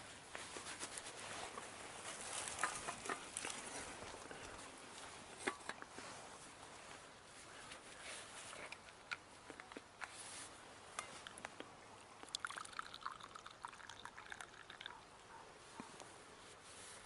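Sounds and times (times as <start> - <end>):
faint rustling of netting: 0.0 - 17.0.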